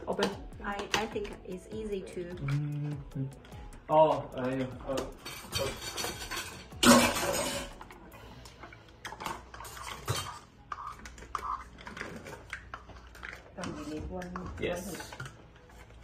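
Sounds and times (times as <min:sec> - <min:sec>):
spoon scraping measuring cup: 0:09.6 - 0:12.3.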